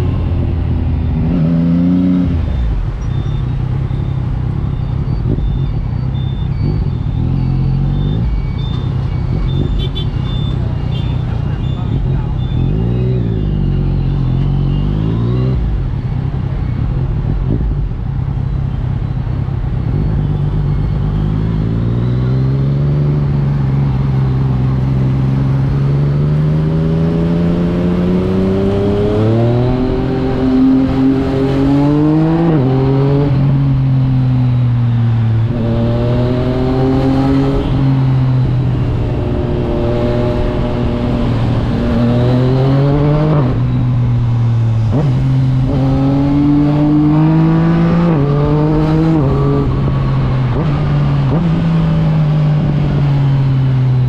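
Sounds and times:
motorcycle engine revving: 0:00.0 - 0:05.4, 0:19.8 - 0:54.0.

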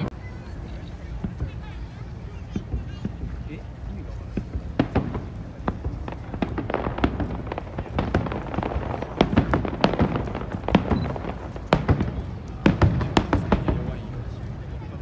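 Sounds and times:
firework shells bursting: 0:04.4 - 0:14.1.

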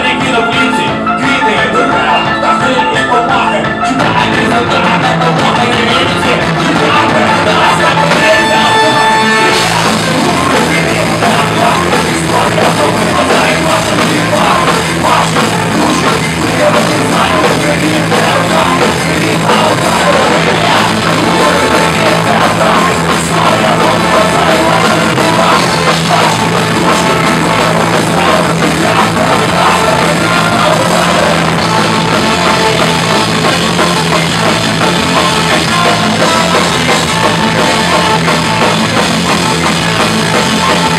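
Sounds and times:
live ska-punk band playing: 0:00.0 - 0:40.9.

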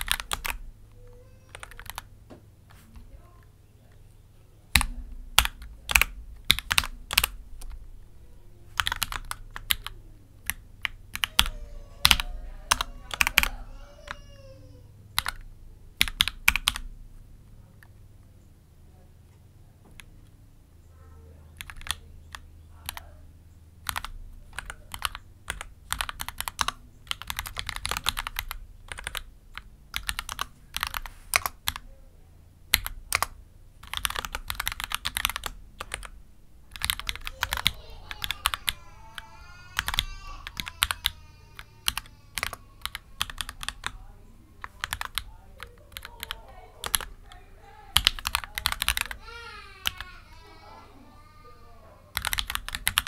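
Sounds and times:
typing on mechanical keyboard: 0:00.0 - 0:00.6, 0:01.2 - 0:02.1, 0:04.7 - 0:07.8, 0:08.7 - 0:14.5, 0:15.1 - 0:16.9, 0:21.6 - 0:23.1, 0:23.8 - 0:31.8, 0:32.7 - 0:44.0, 0:44.6 - 0:50.1, 0:52.1 - 0:53.0.

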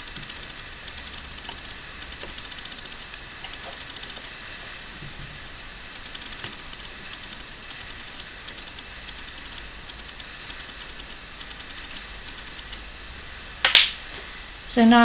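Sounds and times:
fine metallic ticks: 0:00.0 - 0:04.4, 0:05.9 - 0:12.9.

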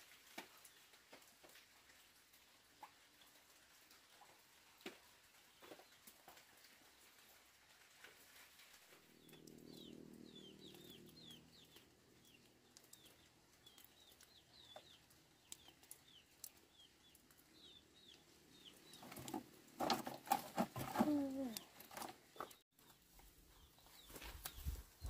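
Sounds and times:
bird chirping: 0:09.1 - 0:19.5
knocks and clatter of fence poles: 0:19.0 - 0:22.6.

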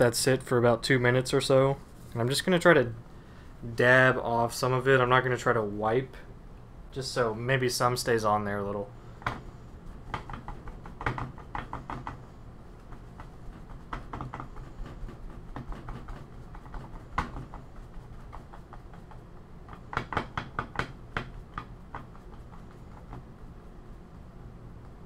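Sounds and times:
faint steady hum: 0:00.0 - 0:25.0
soft wad dabbing a surface: 0:07.0 - 0:25.0.

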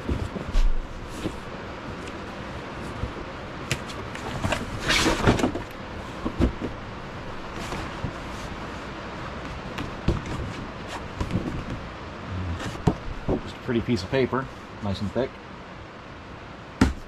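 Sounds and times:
cardboard box lid scraping: 0:04.2 - 0:05.6
heavy rain hiss: 0:11.8 - 0:16.7.

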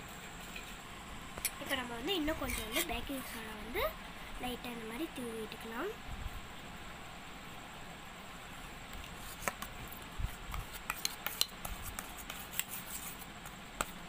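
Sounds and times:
spoon scraping steel bowl: 0:02.4 - 0:02.9.

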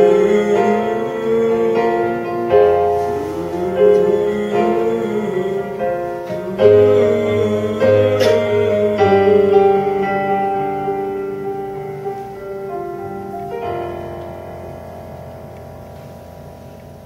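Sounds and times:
piano chords on keyboard: 0:00.0 - 0:17.0.

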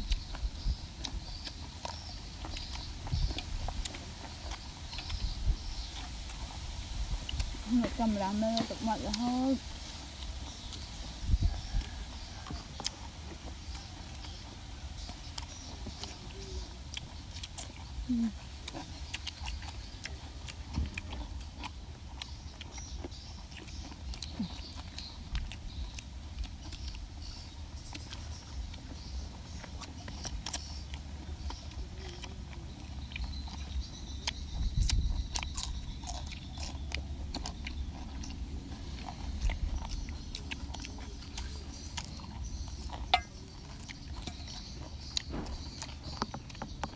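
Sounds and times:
people chewing crunchy food: 0:00.0 - 0:46.9
steady low rumble: 0:23.2 - 0:46.2.

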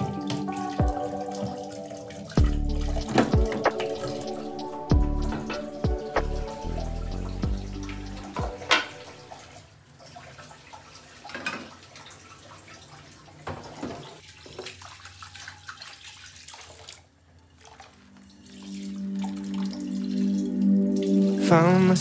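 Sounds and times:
soft music with held tones: 0:00.0 - 0:09.5, 0:17.9 - 0:22.0
water splashing into a pan: 0:08.3 - 0:20.9.

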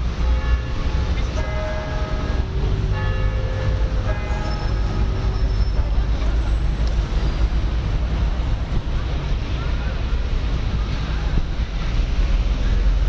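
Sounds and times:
faint voices: 0:05.0 - 0:13.0.

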